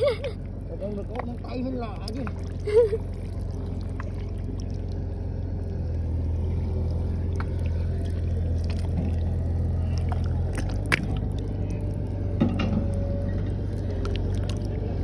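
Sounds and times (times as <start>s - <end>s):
steady low drone: 0.0s - 15.0s
squelching and splashing mud: 0.4s - 15.0s
sharp wet splats: 7.4s - 11.9s.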